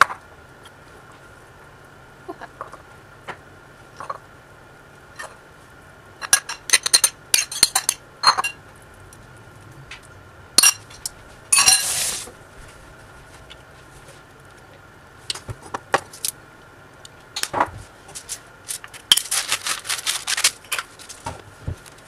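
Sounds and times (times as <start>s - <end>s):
utensil scraping bowl: 10.6s - 12.4s.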